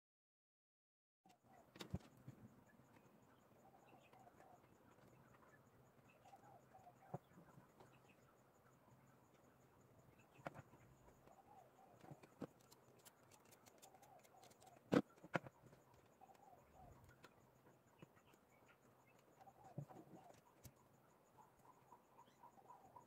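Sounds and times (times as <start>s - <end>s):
faint bird chirps: 1.3s - 23.0s
sharp clicks: 12.0s - 16.1s.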